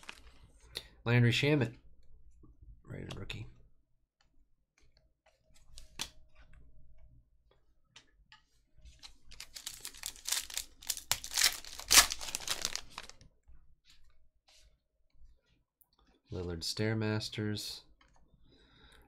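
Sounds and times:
foil wrapper crinkling and tearing: 0:00.0 - 0:00.4, 0:09.3 - 0:13.2.

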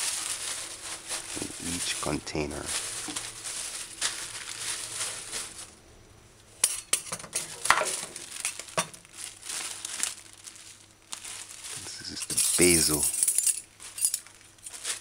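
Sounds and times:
plastic bag crinkling: 0:00.0 - 0:05.8, 0:07.3 - 0:15.0
metal measuring spoons clinking: 0:12.2 - 0:14.3.

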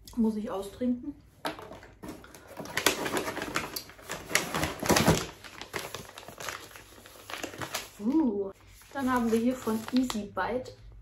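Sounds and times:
plastic packaging crinkling: 0:01.5 - 0:10.3.

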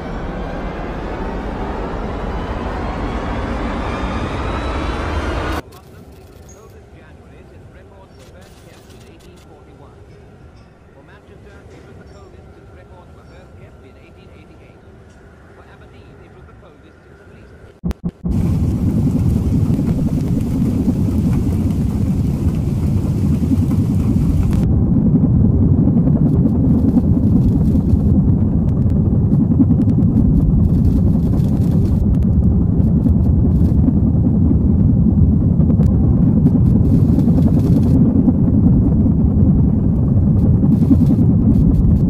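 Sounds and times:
loud low rumbling drone: 0:00.0 - 0:05.6, 0:17.7 - 0:42.0.

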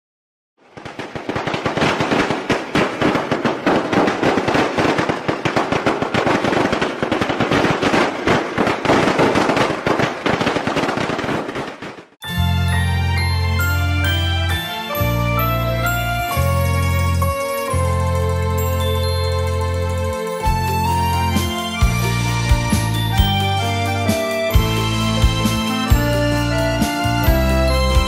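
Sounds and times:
firecrackers crackling: 0:00.6 - 0:12.3, 0:13.2 - 0:28.0
music: 0:12.2 - 0:28.0.

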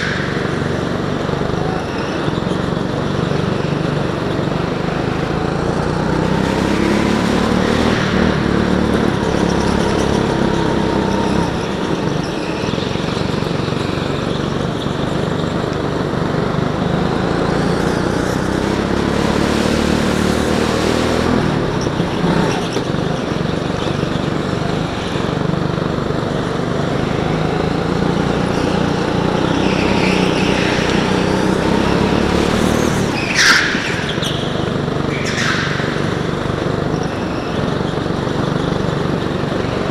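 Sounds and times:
tyre squeals: 0:00.0 - 0:15.7, 0:26.8 - 0:39.9
go-kart engine revving: 0:00.0 - 0:39.9.

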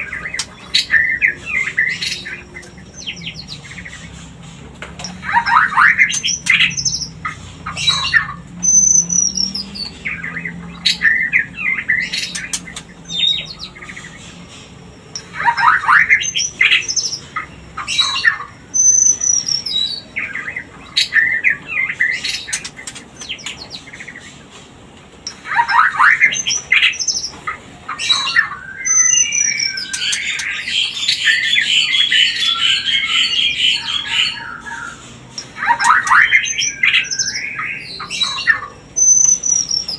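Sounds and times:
bird harsh chatter: 0:00.0 - 0:39.9
bird song with whistles: 0:07.7 - 0:14.2, 0:15.2 - 0:24.0, 0:25.5 - 0:27.3, 0:28.0 - 0:35.0, 0:35.6 - 0:39.9.

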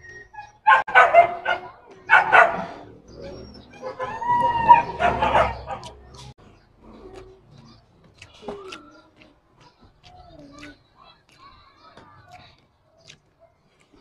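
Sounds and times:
dog barking and yipping: 0:00.2 - 0:06.1.

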